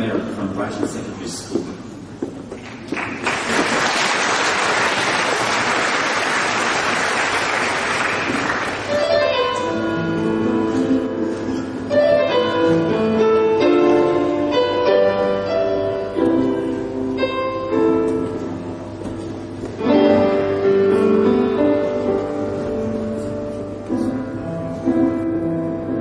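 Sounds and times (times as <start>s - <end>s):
grand piano playing slowly: 4.8s - 26.0s.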